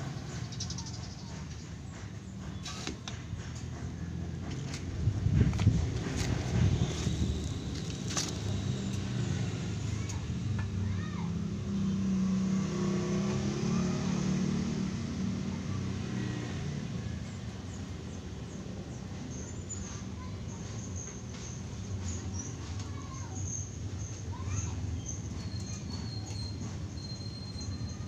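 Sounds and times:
vehicle engine passing by: 5.4 - 18.2.

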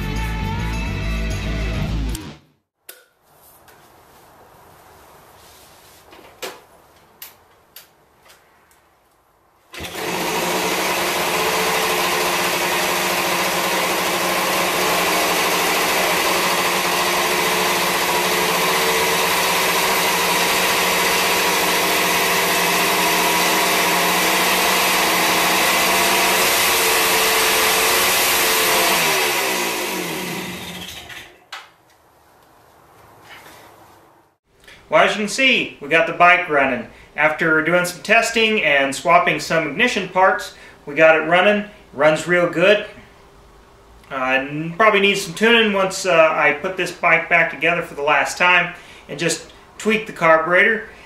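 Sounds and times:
two-stroke engine running: 9.8 - 31.4.

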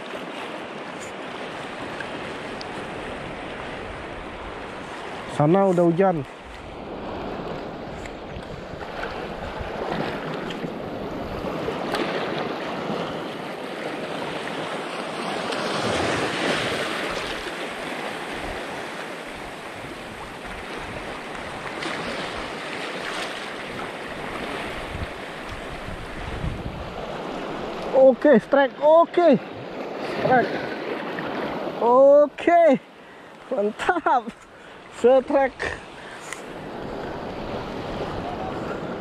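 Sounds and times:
small waves washing over rocks: 0.0 - 31.9
wind on microphone: 6.3 - 12.5, 23.7 - 27.9, 35.8 - 39.0.

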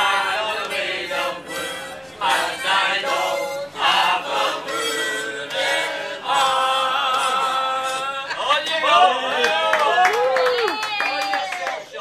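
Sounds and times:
harmonica playing a melody: 0.7 - 8.0.

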